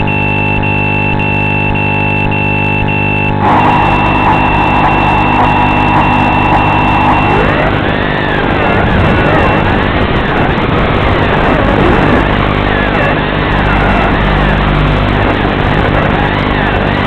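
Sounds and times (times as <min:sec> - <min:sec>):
high pulsing tone: 0:00.0 - 0:09.8
drone motors whining: 0:00.0 - 0:17.0
electronic buzz: 0:00.0 - 0:17.0.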